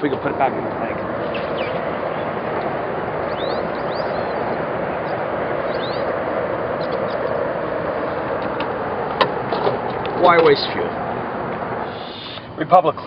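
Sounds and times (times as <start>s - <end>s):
steady rushing outdoor noise: 0.0s - 13.0s
high bird chirps: 0.9s - 9.5s, 11.8s - 12.5s.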